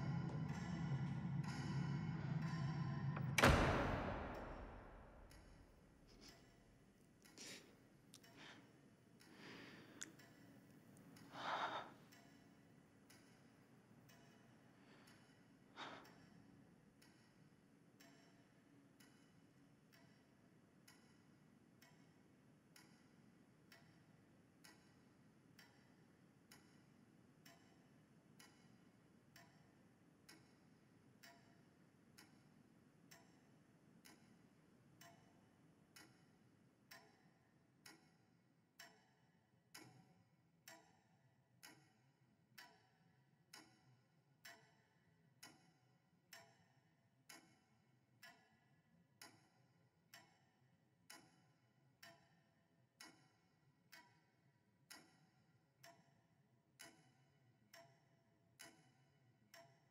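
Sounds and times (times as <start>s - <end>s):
low hum: 0.0s - 5.4s
faint steady ticking: 5.2s - 59.9s.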